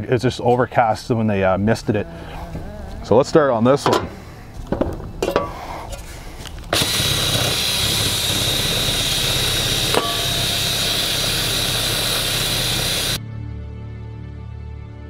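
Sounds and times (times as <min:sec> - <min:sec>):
drill brush scraping paint: 0:06.7 - 0:13.2.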